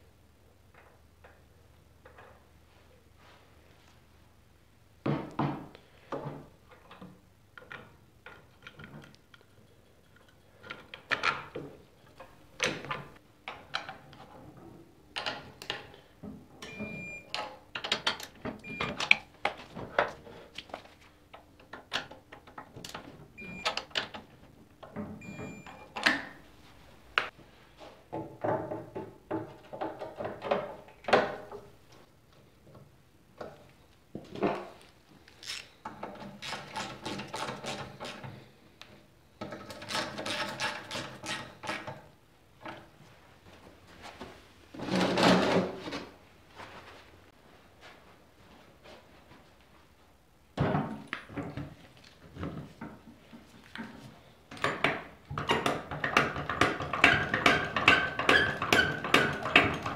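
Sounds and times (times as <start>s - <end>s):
metal clanks and knocks: 54.6s - 59.9s.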